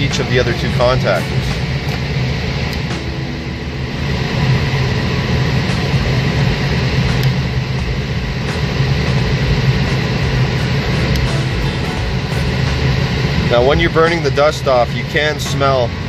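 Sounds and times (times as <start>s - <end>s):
air conditioner blower drone: 0.0s - 16.0s
low hum: 0.0s - 16.0s.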